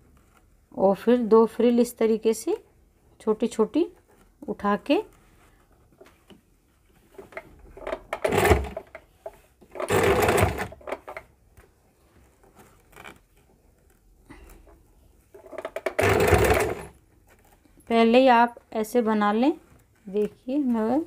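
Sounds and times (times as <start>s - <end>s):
sewing machine stitching: 7.8s - 9.0s, 9.7s - 11.2s, 15.4s - 17.0s
fabric handling: 11.4s - 21.0s.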